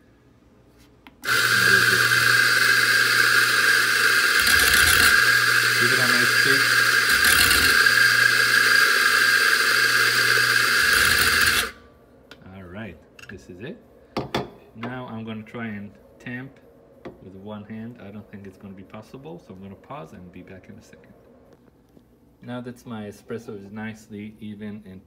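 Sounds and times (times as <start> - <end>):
coffee grinder motor whirring: 1.2 - 11.8.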